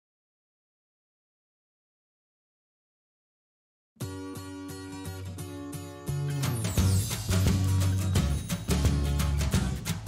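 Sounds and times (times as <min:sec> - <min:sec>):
strummed guitar music: 0:04.0 - 0:10.0.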